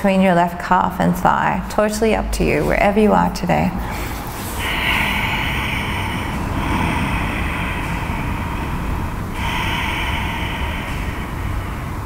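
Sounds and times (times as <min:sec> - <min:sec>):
low hum: 0:00.7 - 0:12.0
woman breathing deeply: 0:03.8 - 0:12.0.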